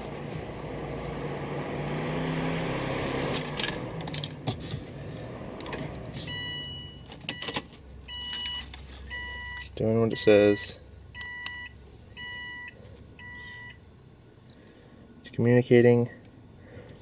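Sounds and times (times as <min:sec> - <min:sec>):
keys jangling: 0:07.1 - 0:09.1.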